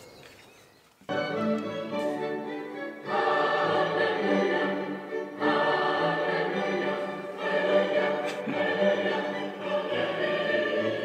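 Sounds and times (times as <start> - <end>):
choral singing through speaker: 3.0 - 11.0.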